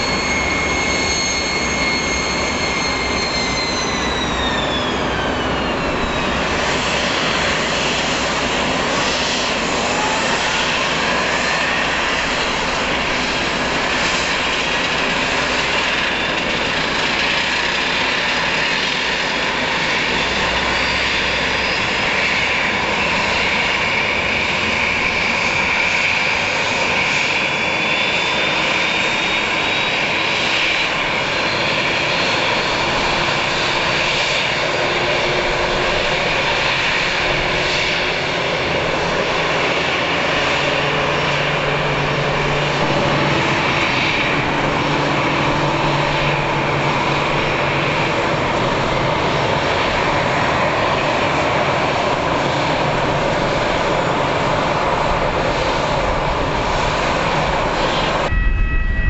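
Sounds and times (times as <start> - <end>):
faint high whistle: 0.0 - 6.5, 58.0 - 59.0
jet engines whining: 0.0 - 59.0
low hum: 57.9 - 59.0.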